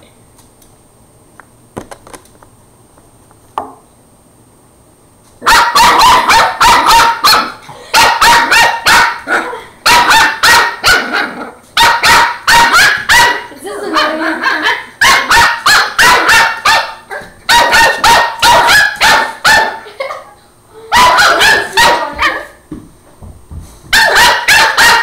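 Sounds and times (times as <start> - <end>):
puppy barking: 5.4 - 20.1, 20.9 - 22.6, 23.9 - 25.0.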